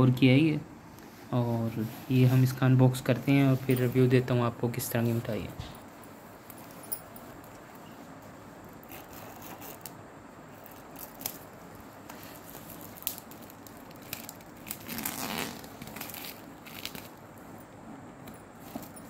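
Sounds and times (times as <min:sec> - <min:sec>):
plastic wrap crinkling: 0:10.6 - 0:17.3.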